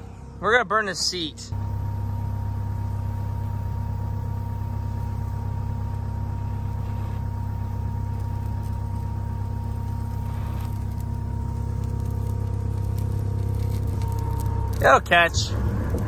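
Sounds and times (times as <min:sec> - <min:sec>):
low mechanical hum: 0:00.0 - 0:16.0.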